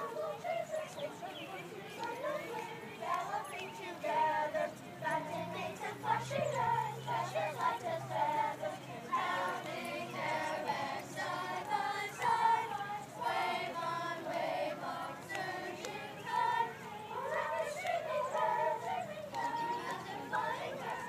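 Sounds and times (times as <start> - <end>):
children singing together: 0.0 - 21.0.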